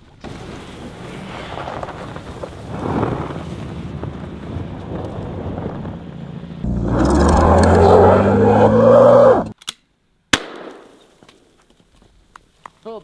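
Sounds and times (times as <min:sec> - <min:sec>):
wind on microphone: 0:01.1 - 0:06.1
car engine revving hard: 0:05.8 - 0:09.5.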